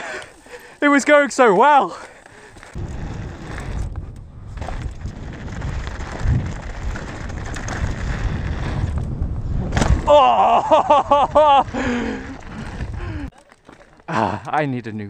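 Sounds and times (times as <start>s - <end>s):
bike tyres on dirt trail: 0.0s - 14.7s
wind on microphone: 2.8s - 13.3s.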